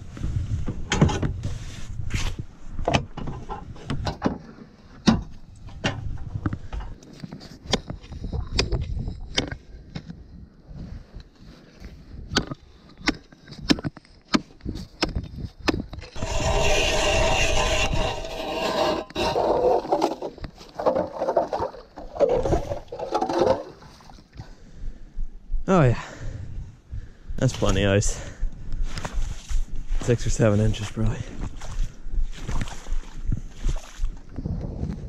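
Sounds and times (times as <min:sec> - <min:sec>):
power ice auger drilling: 0:16.2 - 0:20.4.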